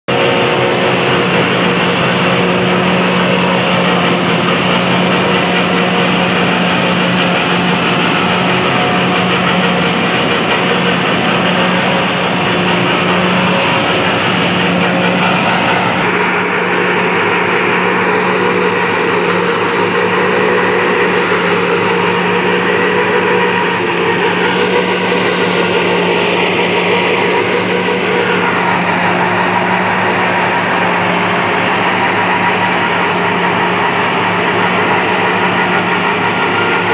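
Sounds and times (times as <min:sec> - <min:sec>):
tractor and forage harvester droning: 0:00.1 - 0:36.9.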